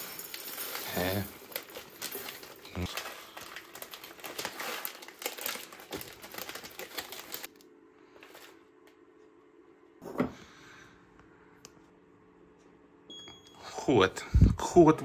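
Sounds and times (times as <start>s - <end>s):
plastic sachets crinkling: 0.0s - 8.6s
faint steady hum: 5.2s - 15.0s.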